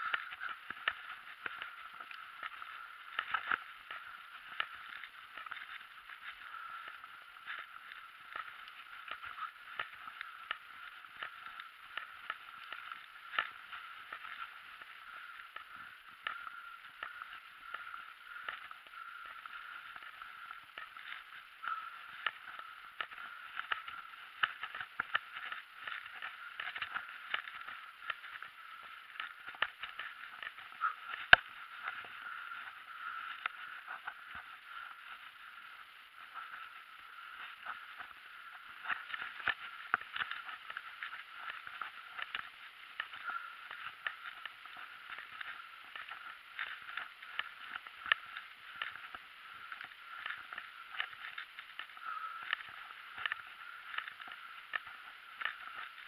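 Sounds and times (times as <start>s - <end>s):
bicycle rolling on paved road: 0.0s - 56.0s
clicks and knocks from bumps: 0.1s - 34.6s.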